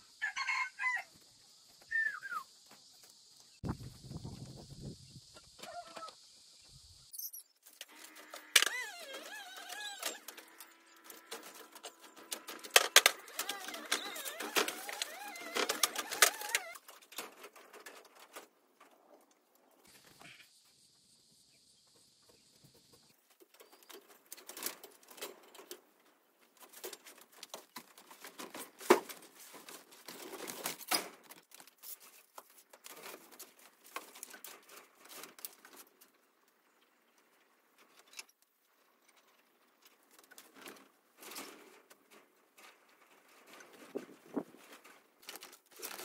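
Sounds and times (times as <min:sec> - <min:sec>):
wire mesh rustling and rattling: 0:07.6 - 0:19.3, 0:23.2 - 0:36.4, 0:37.7 - 0:46.0
movements on bamboo floor: 0:07.6 - 0:20.4, 0:21.8 - 0:46.0.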